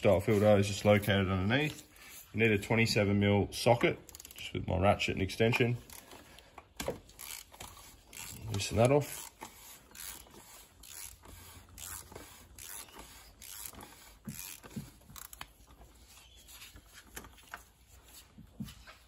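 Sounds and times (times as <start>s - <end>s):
gloved hand rubbing: 0.0s - 2.9s, 7.2s - 19.0s
ratchet clicks: 4.0s - 4.5s, 6.8s - 15.5s.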